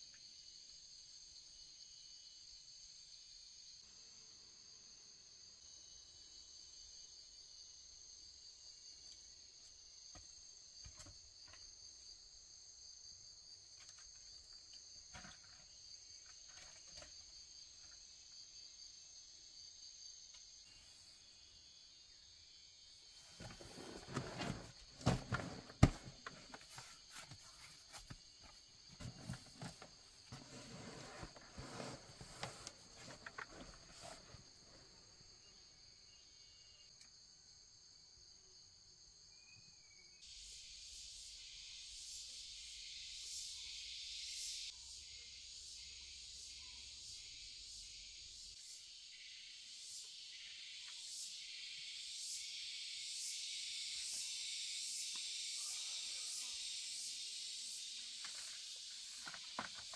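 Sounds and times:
insects droning: 0:00.0 - 0:59.9
rustling and knocking: 0:23.2 - 0:34.4, 0:58.2 - 0:59.9.

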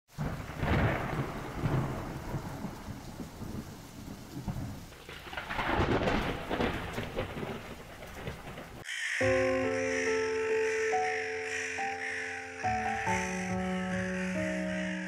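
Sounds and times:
thunder rumbling: 0:00.1 - 0:08.8
steady rain: 0:00.1 - 0:08.9.

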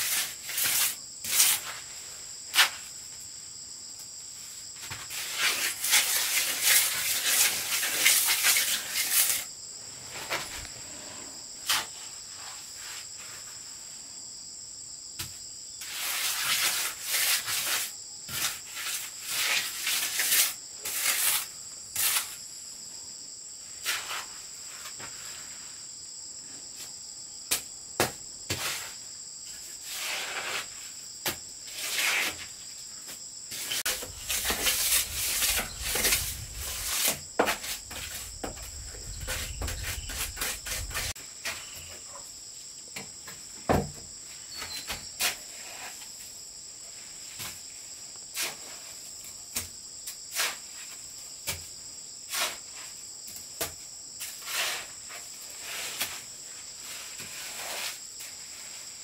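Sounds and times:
high-pitched insect chorus: 0:00.0 - 0:59.0
rough scraping: 0:10.1 - 0:11.9, 0:33.5 - 0:41.8.

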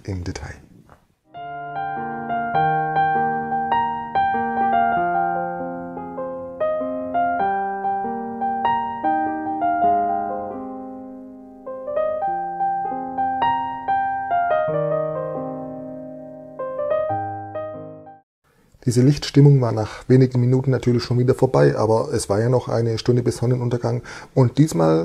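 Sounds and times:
slow solo piano music: 0:01.3 - 0:18.2.

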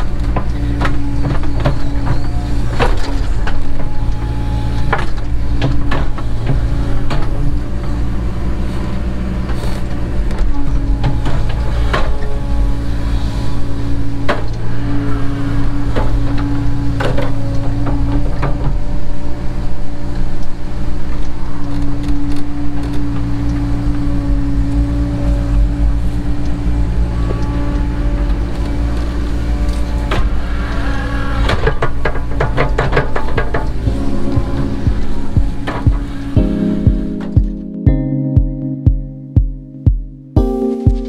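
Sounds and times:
hydraulic whine: 0:00.0 - 0:37.4
excavator diesel engine drone: 0:00.0 - 0:38.8.

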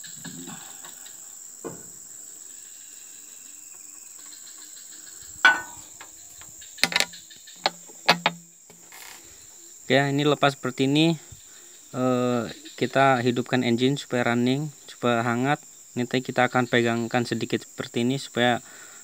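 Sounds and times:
insects chirring: 0:00.0 - 0:19.0
wrench clicking on metal: 0:06.8 - 0:08.4.

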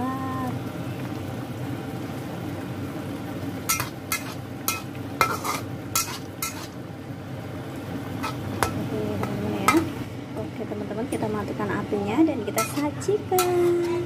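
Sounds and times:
ladle stirring curry in a wok: 0:03.7 - 0:06.8, 0:12.5 - 0:14.0.

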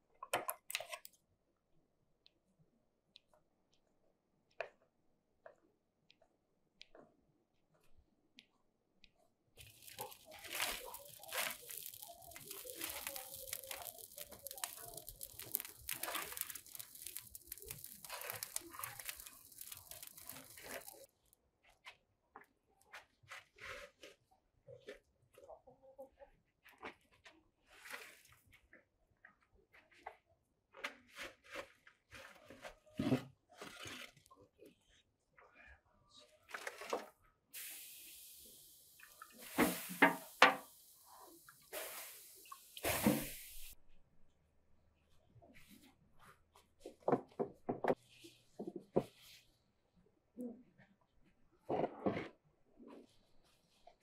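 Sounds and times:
brushwood crackling in fire: 0:09.6 - 0:21.1, 0:37.6 - 0:43.8
water hissing into steam: 0:09.6 - 0:21.1, 0:37.6 - 0:43.8.

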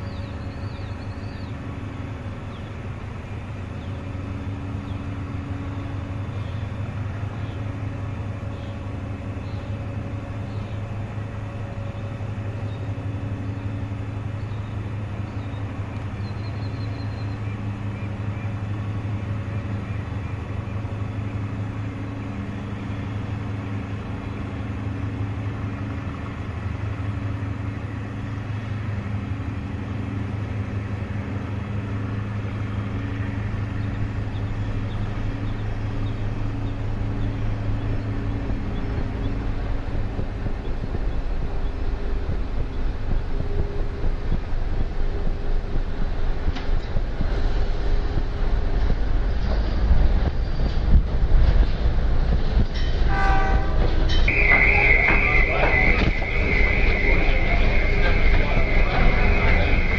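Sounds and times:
diesel engine drone: 0:00.0 - 0:59.9
humming tones: 0:00.0 - 0:59.9.

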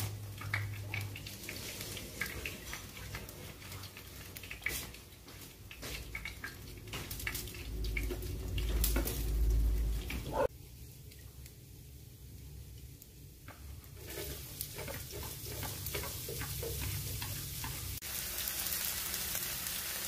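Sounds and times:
low rumble: 0:07.6 - 0:10.3.

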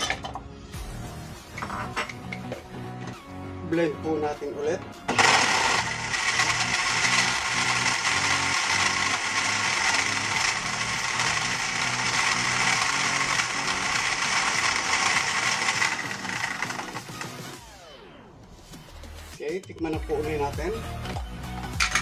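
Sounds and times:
electric blender running: 0:05.1 - 0:17.9
motor winding down whine: 0:05.1 - 0:18.2.

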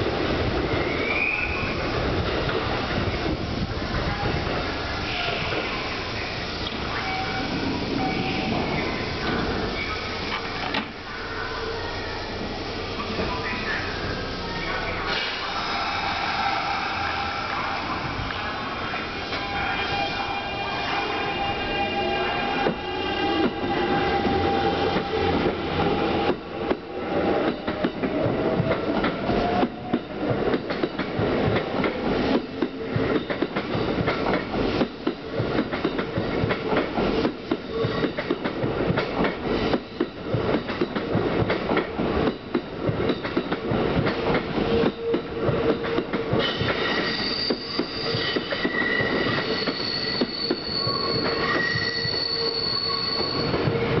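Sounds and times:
train wheels squealing: 0:00.7 - 0:01.9, 0:06.9 - 0:10.2, 0:44.6 - 0:54.0.

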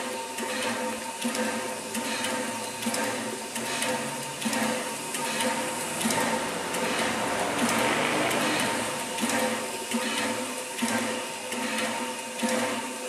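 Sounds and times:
air pump pulsing: 0:00.0 - 0:13.0
steam hissing: 0:01.5 - 0:11.4
steady hum: 0:01.8 - 0:09.8.

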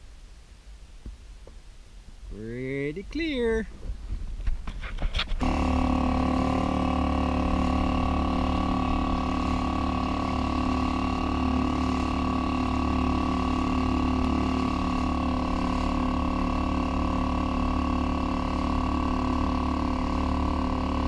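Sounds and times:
motor humming: 0:05.3 - 0:21.0.

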